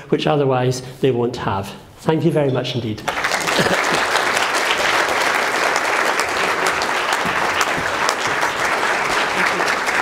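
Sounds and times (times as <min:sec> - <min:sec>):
audience applauding: 0:03.1 - 0:10.0.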